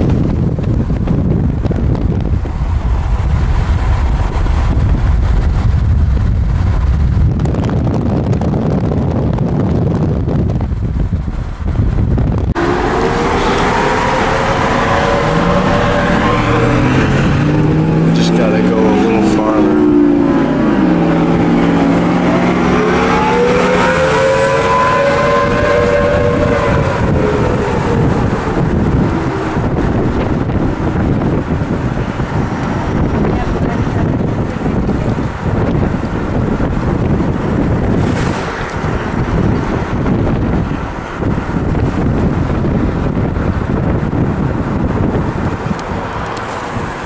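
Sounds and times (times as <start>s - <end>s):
car road noise: 0.0s - 47.0s
wind buffeting microphone: 0.0s - 47.0s
high rising tone: 12.4s - 33.8s
vehicle engine running: 25.0s - 47.0s.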